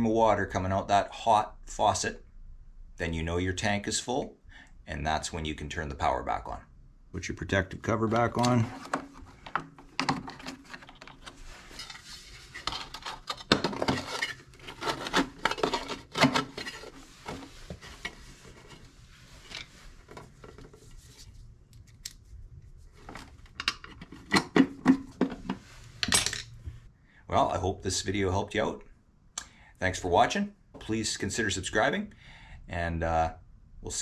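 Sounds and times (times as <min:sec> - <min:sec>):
sheet metal cover scraping: 0:10.2 - 0:21.2.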